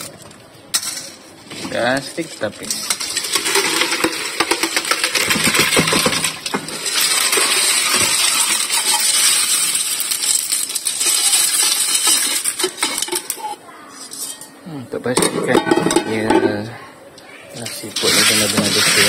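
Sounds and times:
shells clattering on metal colander: 0:02.6 - 0:14.5
water rushing through colander: 0:17.8 - 0:19.0.

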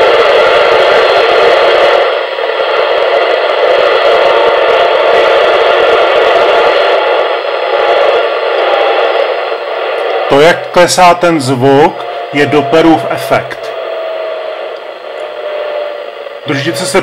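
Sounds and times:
hissy radio signal: 0:00.0 - 0:17.0.

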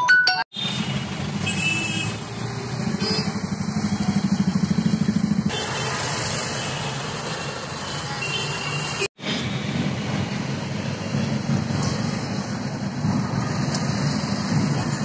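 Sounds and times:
city traffic: 0:00.0 - 0:15.0
engine and road noise in cab: 0:09.0 - 0:15.0.

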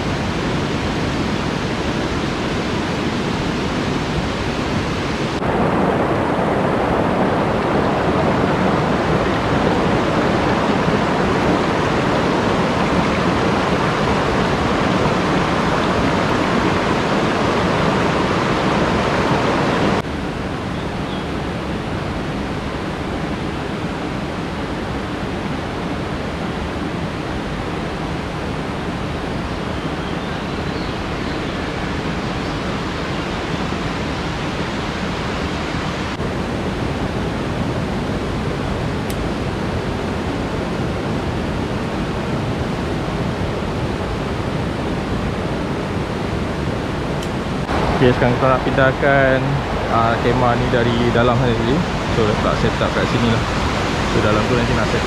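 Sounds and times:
river rushing over stones: 0:00.0 - 0:20.0, 0:38.7 - 0:55.0.

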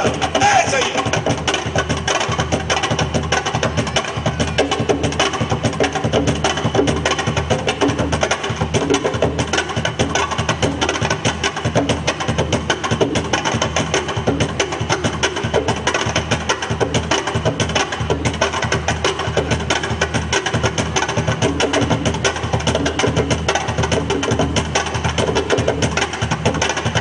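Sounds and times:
fast driving percussion: 0:00.0 - 0:27.0.

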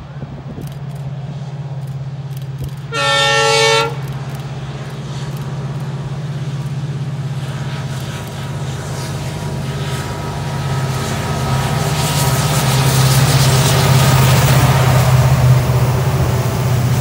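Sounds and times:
locomotive diesel engine droning: 0:00.0 - 0:17.0
train horn blast: 0:02.9 - 0:04.2.

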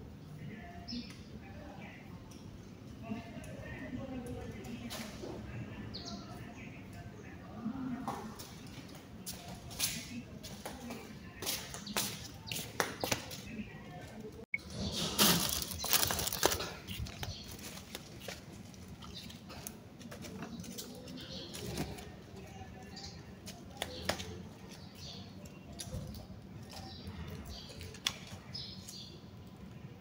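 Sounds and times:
garden litter rustling: 0:14.8 - 0:21.0
plastic bag handled: 0:15.0 - 0:19.0.

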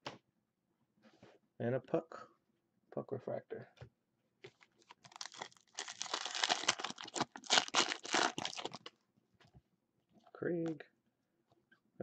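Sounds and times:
plastic wrapper crinkling: 0:04.5 - 0:08.9.

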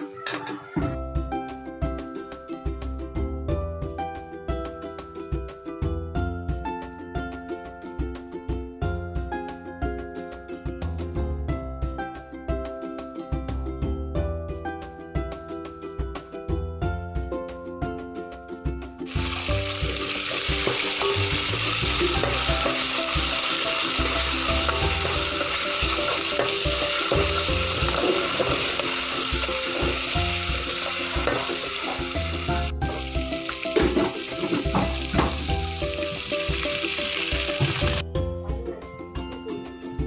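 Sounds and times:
background music: 0:00.0 - 0:40.0
onion and tomato sizzling in oil: 0:19.1 - 0:38.0.

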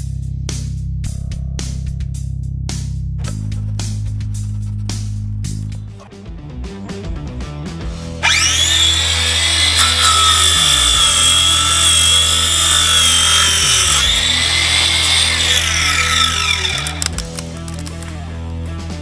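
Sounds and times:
angle grinder saw cutting wood: 0:08.2 - 0:18.1.

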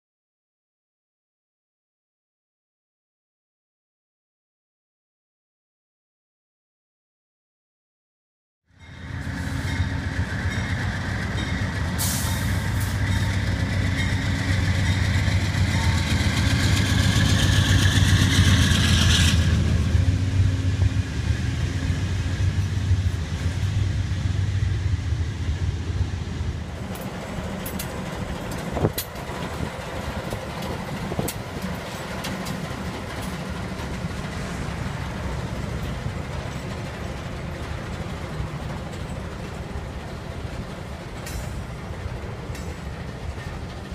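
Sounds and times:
passing train rumble: 0:08.7 - 0:43.9
rushing wheels and air: 0:16.1 - 0:43.9
locomotive idling rumble: 0:26.6 - 0:43.9.

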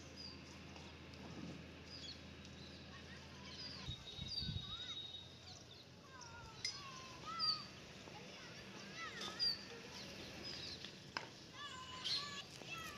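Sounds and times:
birds chirping: 0:01.8 - 0:12.8.

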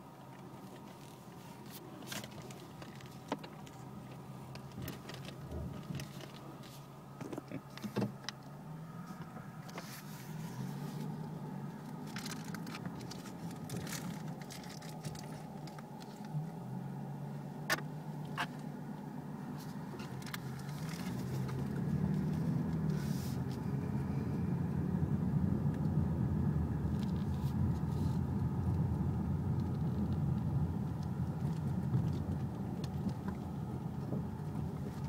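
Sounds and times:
car engine running slowly: 0:00.0 - 0:35.0
knocks and clicks from car: 0:07.2 - 0:08.4.

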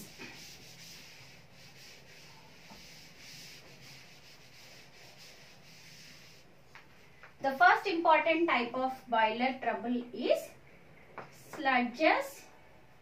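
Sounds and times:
duster scrubbing chalkboard: 0:00.0 - 0:06.6.

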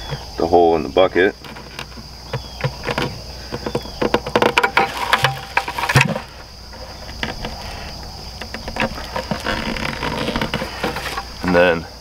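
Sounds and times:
insect chorus: 0:00.0 - 0:12.0
plastic clicks and knocks: 0:01.4 - 0:06.4.

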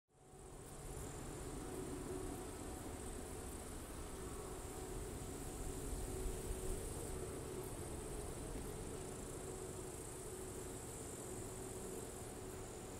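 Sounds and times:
crickets chirring: 0:00.2 - 0:12.9.

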